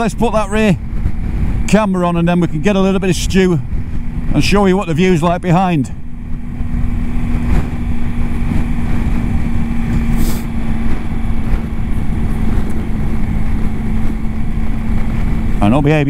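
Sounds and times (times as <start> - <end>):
motorcycle engine running: 0.0 - 16.0
wind rumbling on microphone: 0.0 - 16.0
brief hiss: 10.1 - 10.5.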